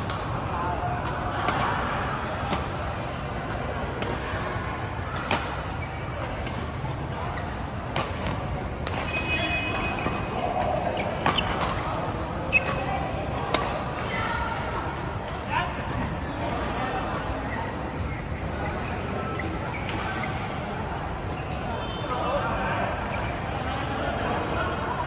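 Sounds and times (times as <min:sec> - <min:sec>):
racket hitting shuttlecock: 0:05.1 - 0:06.9, 0:07.9 - 0:14.1.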